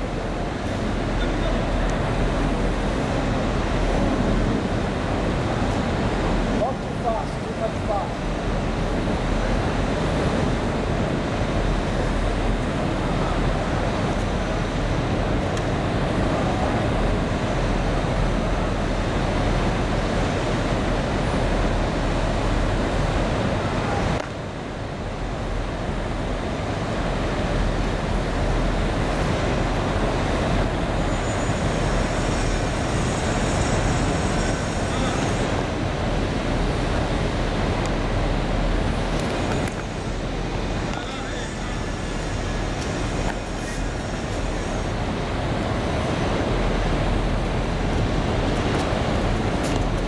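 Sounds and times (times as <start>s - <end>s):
city traffic rumble: 0.0s - 50.0s.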